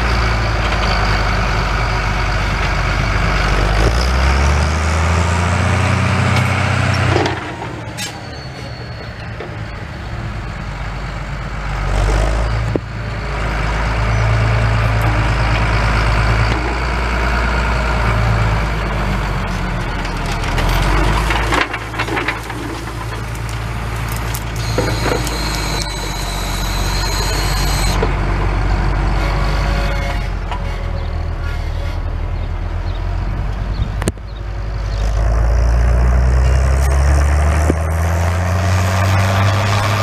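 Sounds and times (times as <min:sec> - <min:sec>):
diesel tractor engine under load: 0:00.0 - 0:40.0
plough rattling and knocking: 0:20.2 - 0:26.1
high steady squeal: 0:24.1 - 0:28.1.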